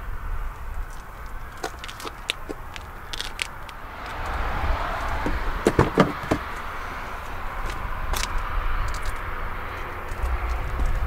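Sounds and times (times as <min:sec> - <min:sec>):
outdoor background hiss: 0:00.0 - 0:11.0
car door knocks and clunks: 0:05.2 - 0:06.5.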